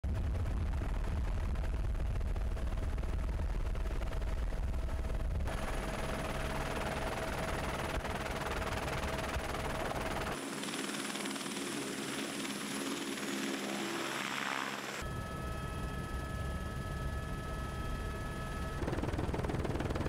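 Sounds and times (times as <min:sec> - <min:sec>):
helicopter rotor chop: 0:01.6 - 0:15.0, 0:18.6 - 0:20.0
helicopter engine whine: 0:02.2 - 0:20.0.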